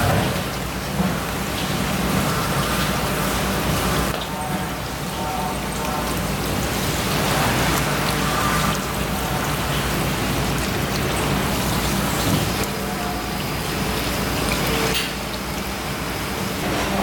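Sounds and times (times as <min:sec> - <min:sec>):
tap water splashing on fish: 0:00.0 - 0:03.1, 0:07.0 - 0:12.8
fingers rinsing fish: 0:00.0 - 0:17.0.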